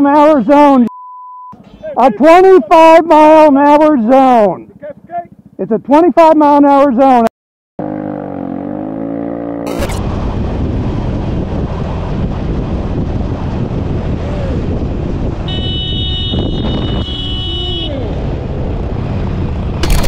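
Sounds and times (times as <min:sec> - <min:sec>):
wind and road noise: 0:00.0 - 0:00.9, 0:01.5 - 0:07.2, 0:07.8 - 0:20.0
vehicle horn: 0:15.4 - 0:18.2.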